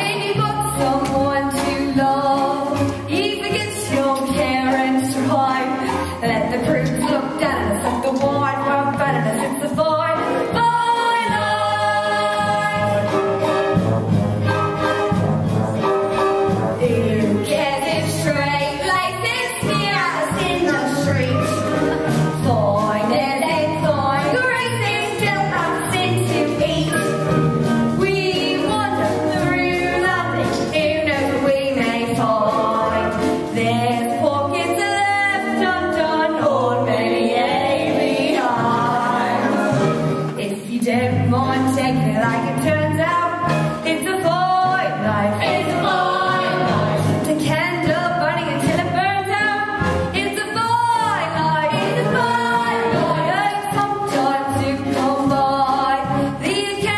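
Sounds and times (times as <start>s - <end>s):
women singing with vibrato: 0.0s - 13.3s, 16.8s - 27.1s, 27.9s - 56.9s
orchestral accompaniment: 0.0s - 56.9s.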